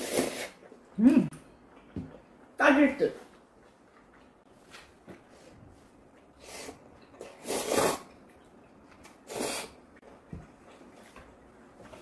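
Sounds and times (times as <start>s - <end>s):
noodles slurped: 6.4s - 8.2s.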